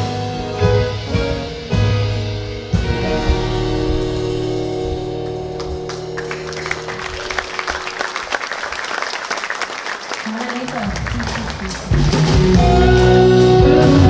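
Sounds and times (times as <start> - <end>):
audience applause: 4.8 - 12.6.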